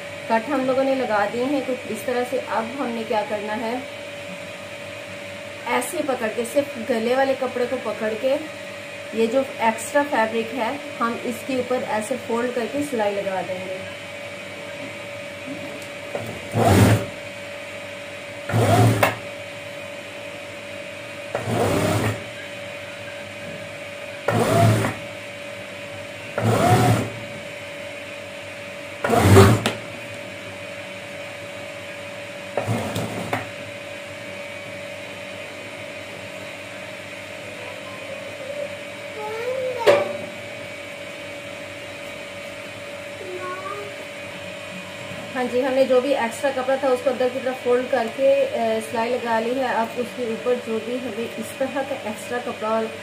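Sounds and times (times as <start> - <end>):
steady hum: 0.0 - 53.0
sewing machine stitching: 16.2 - 17.1, 18.5 - 19.2, 21.4 - 22.2, 24.3 - 25.0, 26.4 - 27.1, 29.0 - 29.7.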